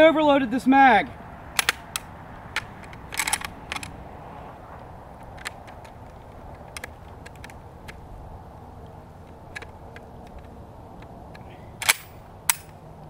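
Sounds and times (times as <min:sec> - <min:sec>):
pistol metal clicks and rattles: 0:01.5 - 0:04.0, 0:05.2 - 0:08.0, 0:08.8 - 0:12.8.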